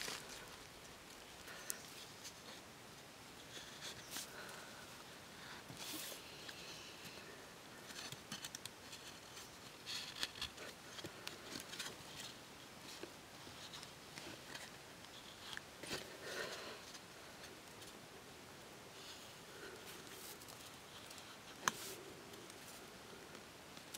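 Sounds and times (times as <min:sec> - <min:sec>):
bamboo pieces clicking and scraping: 0:05.6 - 0:18.0, 0:19.7 - 0:23.9.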